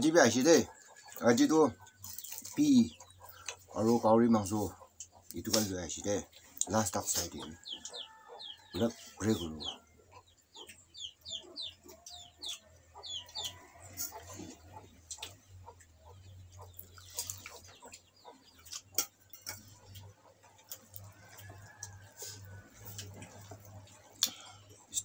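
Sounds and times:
chickens clucking: 0:00.0 - 0:25.0.

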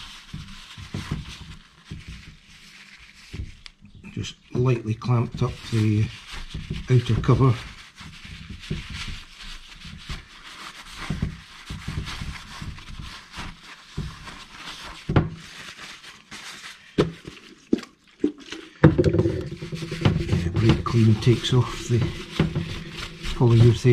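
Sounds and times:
paper towel rubbing metal: 0:00.0 - 0:17.0, 0:19.1 - 0:23.9
soft knocks on bench: 0:18.8 - 0:23.3.

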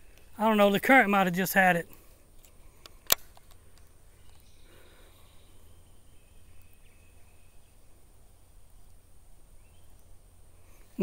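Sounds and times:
faint high chirps: 0:03.6 - 0:11.0
low creek rumble: 0:03.8 - 0:11.0.

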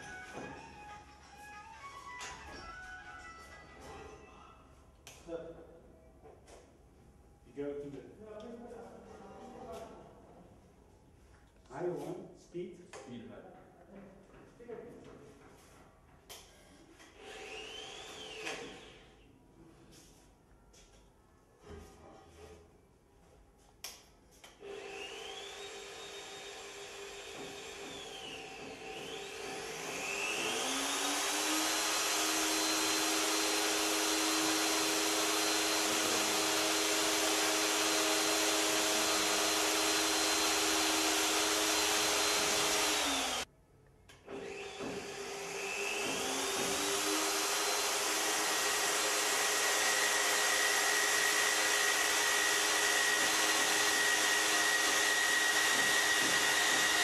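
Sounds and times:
magnetic drill motor whine: 0:29.1 - 0:43.4, 0:44.4 - 0:57.0.

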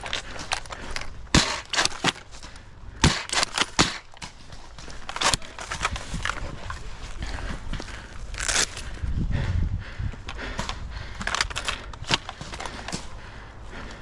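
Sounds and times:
outdoor rustle: 0:00.0 - 0:14.0.

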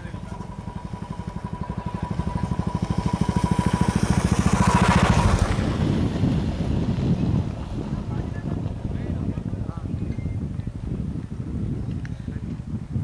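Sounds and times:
small vehicle engine passing: 0:00.0 - 0:09.8.

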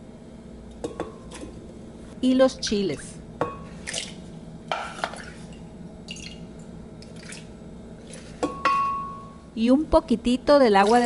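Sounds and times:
wet plops and drips: 0:03.8 - 0:04.2, 0:06.1 - 0:06.4, 0:07.0 - 0:07.5.

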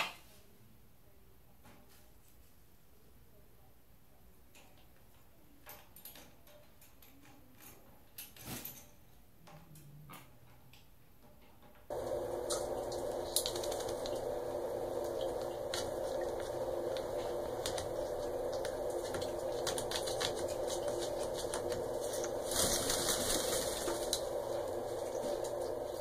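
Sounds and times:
shower water running: 0:11.9 - 0:26.0
spray hiss: 0:11.9 - 0:26.0
water drips and clicks: 0:11.9 - 0:26.0.

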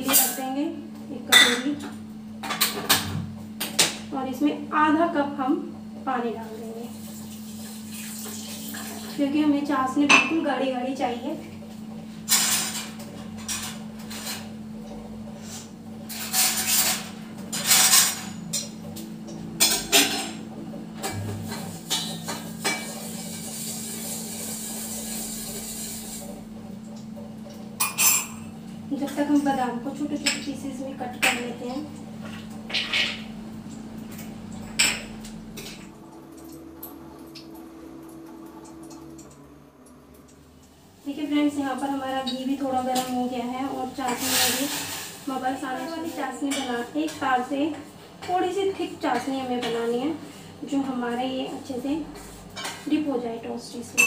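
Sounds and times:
steady low hum: 0:09.2 - 0:44.2
metal utensils clinking and scraping: 0:15.4 - 0:18.8, 0:31.2 - 0:33.2, 0:44.0 - 0:45.2.

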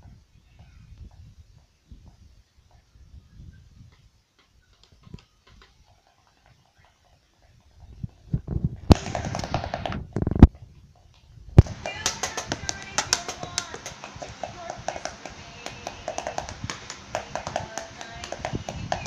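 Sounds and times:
toy drum knocks: 0:11.6 - 0:19.0.

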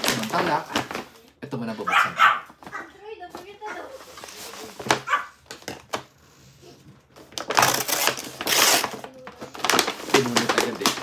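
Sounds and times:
dog barking: 0:01.9 - 0:02.9, 0:05.0 - 0:05.4
paper envelope tearing: 0:07.3 - 0:11.0.

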